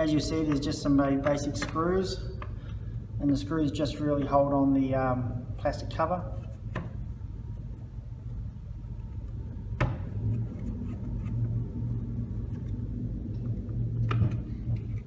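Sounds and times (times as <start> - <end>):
low rumble: 7.1 - 15.0.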